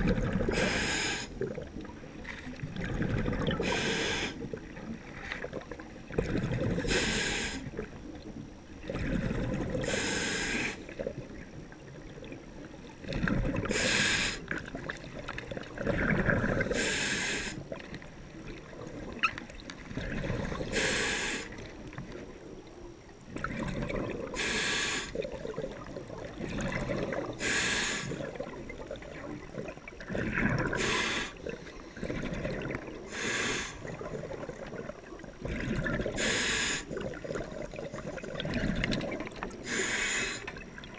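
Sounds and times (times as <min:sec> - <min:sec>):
exhaled air bubbling underwater: 0:00.0 - 0:40.9
regulator hiss on inhale: 0:00.5 - 0:01.4, 0:03.6 - 0:04.4, 0:06.9 - 0:07.7, 0:09.8 - 0:10.8, 0:13.7 - 0:14.5, 0:16.7 - 0:17.6, 0:20.7 - 0:21.6, 0:24.4 - 0:25.2, 0:27.4 - 0:28.2, 0:30.8 - 0:32.0, 0:33.0 - 0:34.0, 0:36.2 - 0:37.0, 0:39.6 - 0:40.6.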